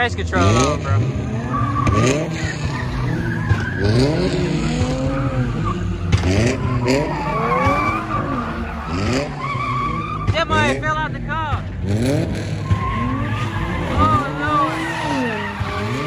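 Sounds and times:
car engine revving: 0.0 - 16.0
tires squealing on pavement: 0.0 - 16.0.

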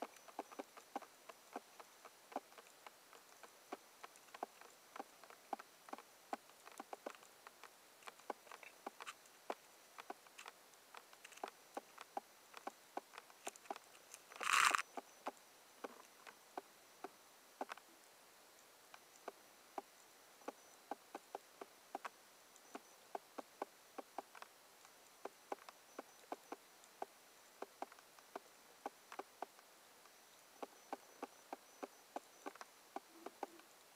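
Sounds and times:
underwater reef crackle: 0.0 - 17.9
faint hiss: 0.0 - 33.9.

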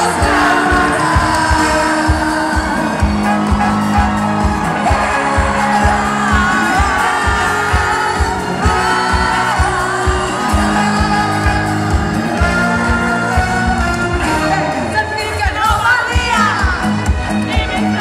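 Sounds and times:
steady kick drum beat: 0.0 - 14.3
live pop band over loudspeakers: 0.0 - 18.0
person singing lead vocal: 0.0 - 18.0.

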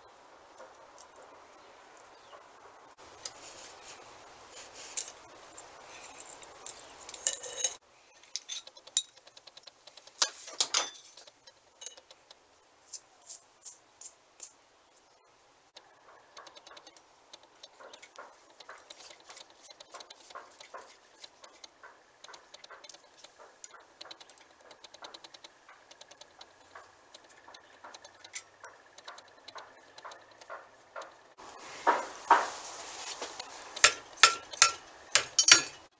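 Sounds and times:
hand tools clicking on metal: 6.0 - 12.4, 16.4 - 31.2, 33.4 - 35.9.

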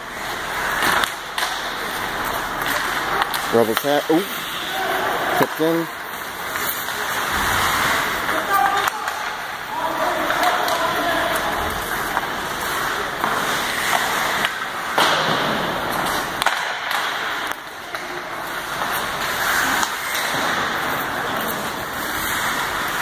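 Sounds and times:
hockey sticks and puck clacking: 0.0 - 23.0
skates scraping ice: 0.0 - 23.0.

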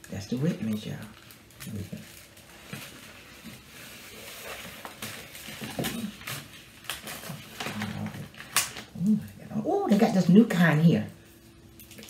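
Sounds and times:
paper crinkling: 0.0 - 9.4.

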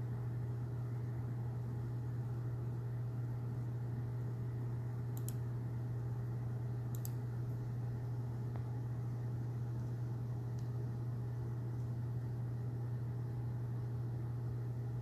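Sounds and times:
steady low hum: 0.0 - 15.0
faint short clicks: 5.2 - 5.4, 6.9 - 7.2.

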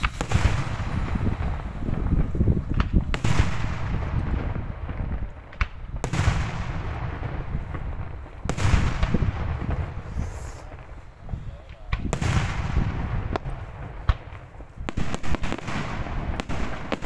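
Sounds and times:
firework shells bursting: 0.0 - 11.0
sharp firework crack: 0.0 - 17.0.

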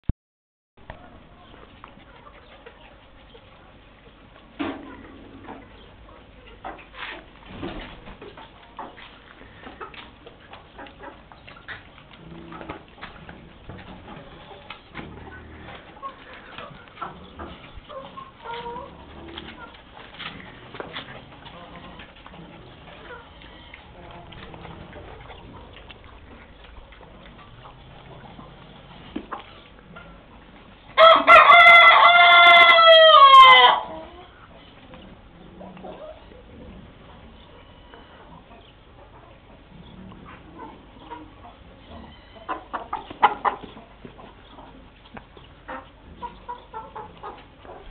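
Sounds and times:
paws clicking and scraping on concrete: 1.4 - 32.7, 33.9 - 47.9
rooster crowing: 31.0 - 34.0.

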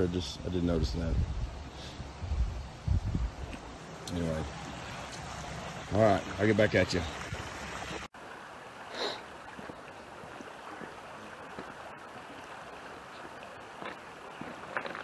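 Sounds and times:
creek water rushing: 0.0 - 15.0
footsteps on gravel: 13.1 - 15.0.

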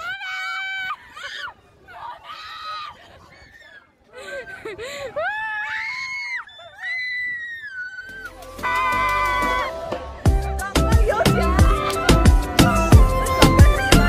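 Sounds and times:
girl screaming: 5.2 - 8.3.

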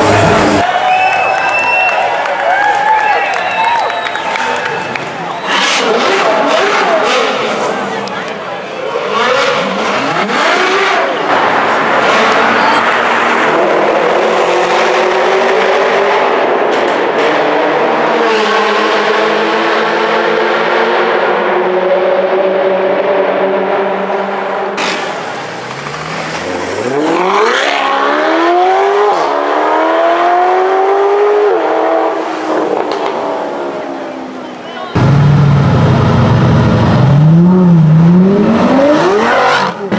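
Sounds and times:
car engines cruising in tunnel: 0.0 - 39.9
car engine accelerating hard: 9.1 - 34.0, 35.0 - 39.9.

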